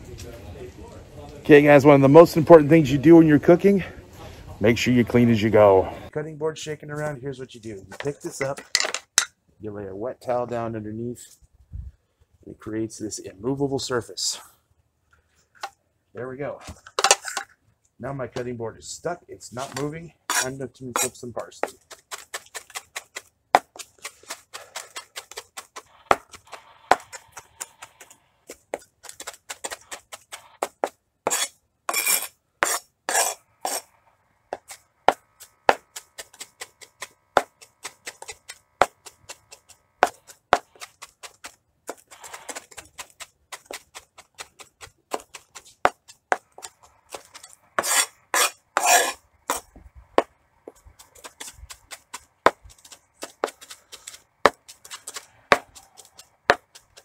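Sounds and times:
knife chopping on plastic board: 21.6s - 31.4s, 34.5s - 49.6s, 51.0s - 57.0s.

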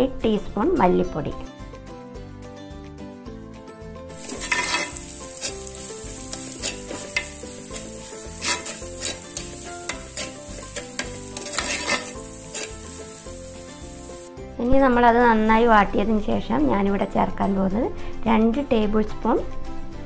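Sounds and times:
food sizzling in oil: 4.1s - 14.3s
spoon scraping clay pot: 4.2s - 13.0s.

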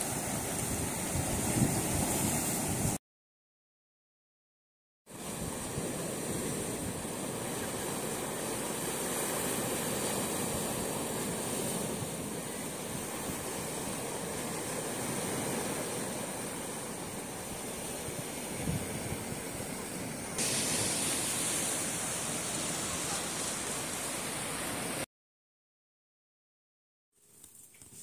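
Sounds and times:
small waves washing on rocky shore: 5.2s - 25.0s.

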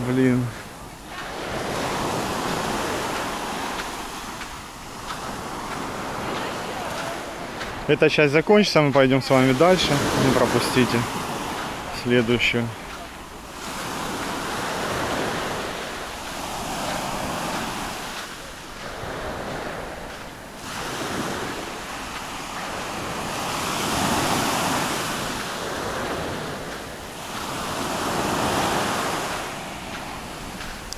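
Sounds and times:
waves washing up a sandy beach: 0.0s - 30.9s.

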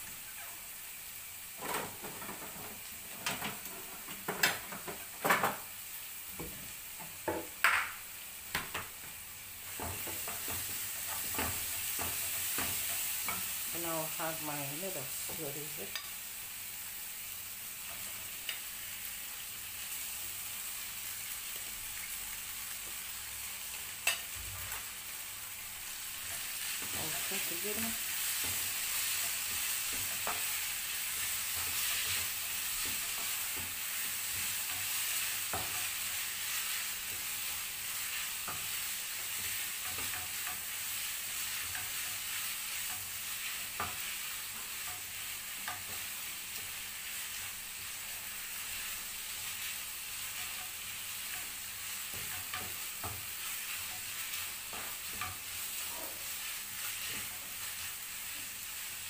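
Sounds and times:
noodles sizzling in oil: 0.0s - 59.0s
wooden spoon knocking on pan: 6.4s - 8.0s.

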